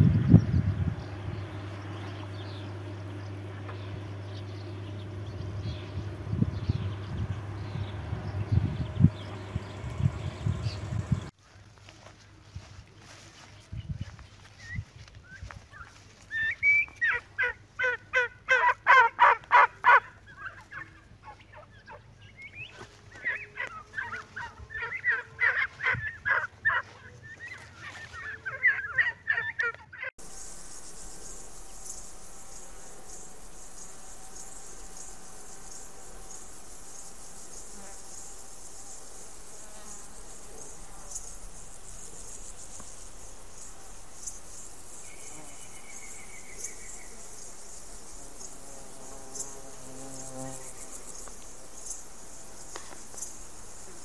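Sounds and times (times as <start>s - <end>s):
insects chirring: 0.0s - 54.0s
turkeys gobbling: 16.4s - 22.0s, 23.2s - 30.1s.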